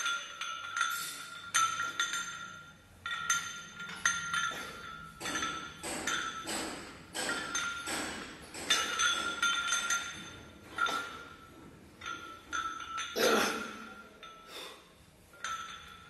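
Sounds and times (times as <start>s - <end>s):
weight plates clinking on barbell: 0.0s - 14.7s, 15.3s - 16.0s.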